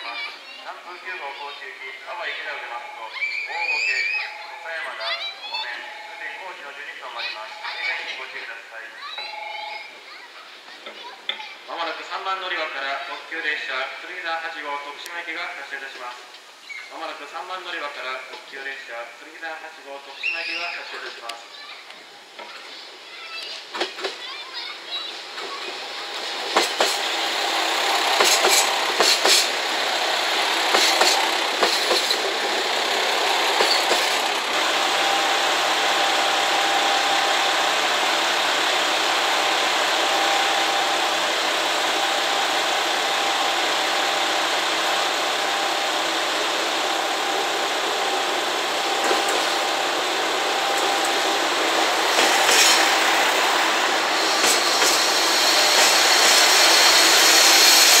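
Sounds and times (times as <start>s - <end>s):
train wheels clicking over rail joints: 23.4s - 24.2s, 25.3s - 34.9s, 46.2s - 58.0s
train running noise with whine: 25.1s - 58.0s.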